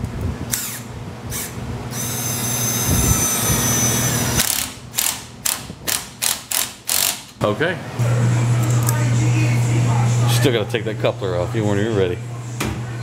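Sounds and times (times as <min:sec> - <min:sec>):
impact gun whining: 0:00.5 - 0:07.4.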